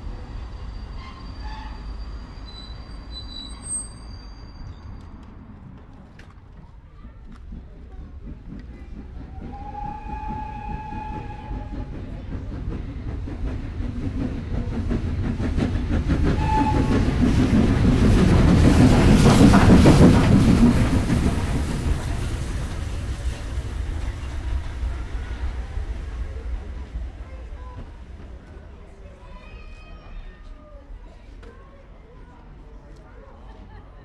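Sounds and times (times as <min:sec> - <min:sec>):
steam locomotive passing: 0:00.0 - 0:31.3
steam locomotive whistle: 0:09.3 - 0:11.9, 0:16.4 - 0:17.2.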